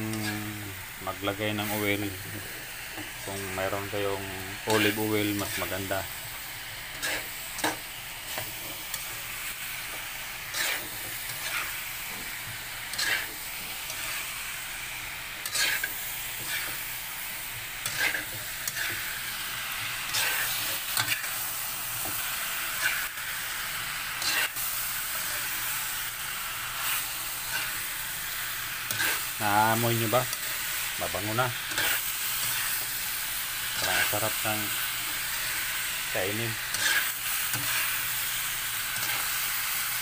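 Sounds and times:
meat sizzling in a frying pan: 0.0s - 40.0s
spatula scraping a pan: 6.9s - 9.2s, 9.9s - 14.2s, 15.4s - 16.8s, 17.8s - 19.1s, 20.0s - 21.4s, 22.0s - 23.1s, 24.2s - 25.6s, 26.8s - 27.9s, 28.8s - 33.0s, 33.6s - 35.9s, 36.5s - 38.2s, 38.8s - 39.5s.

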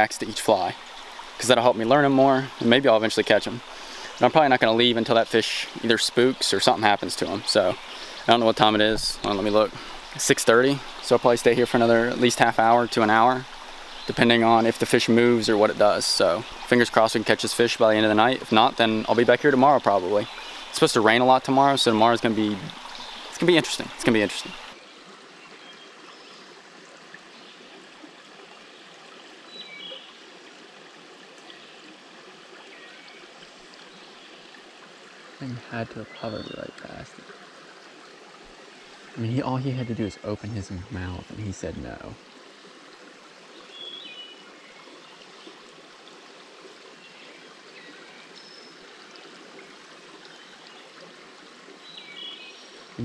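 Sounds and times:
creek running over rocks: 0.0s - 53.0s.

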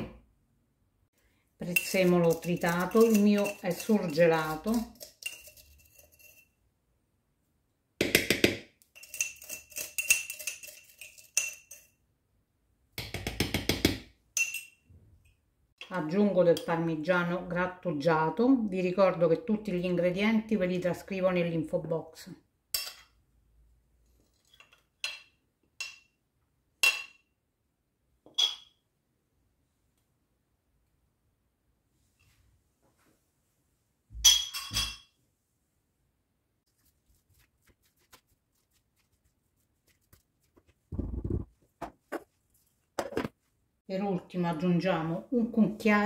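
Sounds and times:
metal spoon clinking on bowl: 1.7s - 6.6s, 9.0s - 12.0s, 14.4s - 14.8s, 22.8s - 23.1s, 34.2s - 35.1s
metal spoon tapping plastic bowl: 13.0s - 14.6s.

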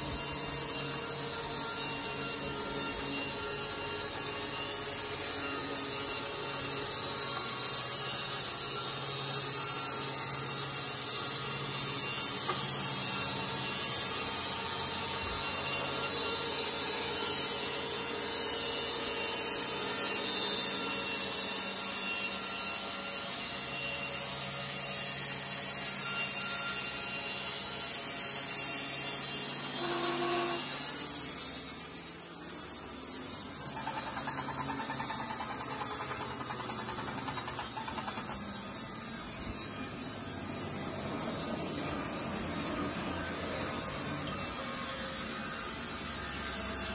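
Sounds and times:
band saw motor hum: 0.0s - 46.9s.

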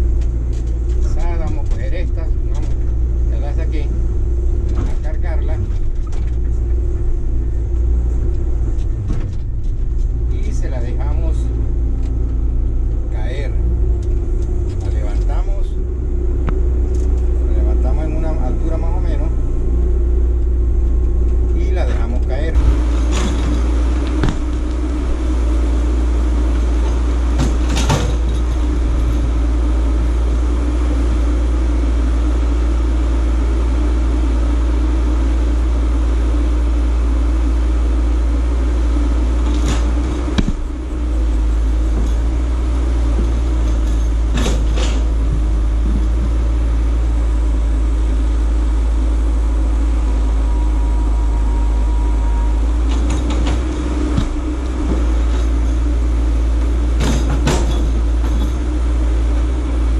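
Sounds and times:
excavator diesel engine running: 0.0s - 59.9s
sharp knocks from rock work: 23.1s - 24.7s, 39.5s - 40.8s.

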